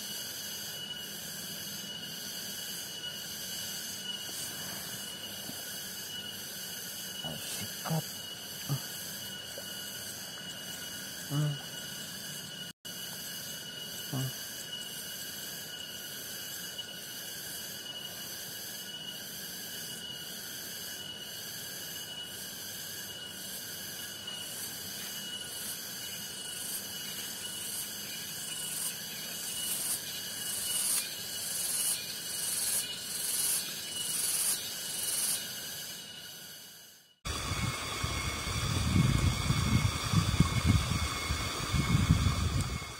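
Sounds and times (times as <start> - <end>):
insects chirring: 0.0 - 42.9
wind buffeting microphone: 37.3 - 42.9.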